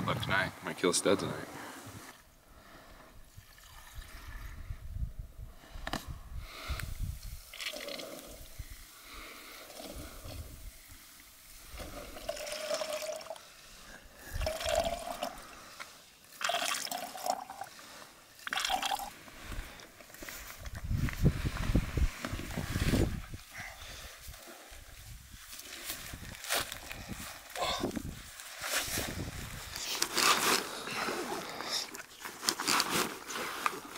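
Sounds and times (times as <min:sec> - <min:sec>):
water trickling into bottle: 0:03.3 - 0:04.6, 0:07.5 - 0:08.4, 0:11.8 - 0:13.4, 0:14.3 - 0:15.6, 0:16.3 - 0:17.8, 0:18.4 - 0:19.2.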